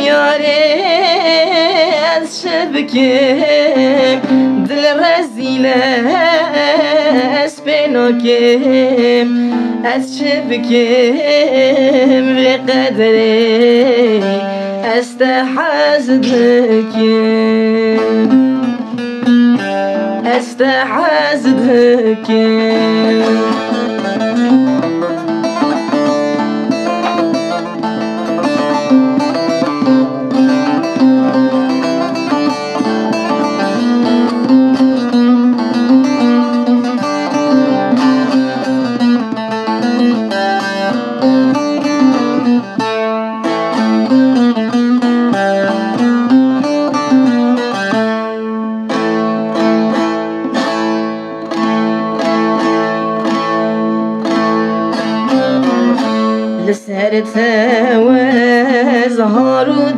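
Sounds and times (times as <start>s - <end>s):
plucked string melody: 0.0s - 59.9s.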